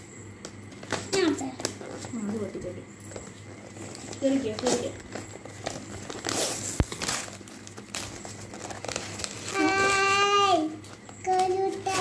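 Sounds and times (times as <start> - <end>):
gift wrapping crinkling and tearing: 3.1 - 12.0.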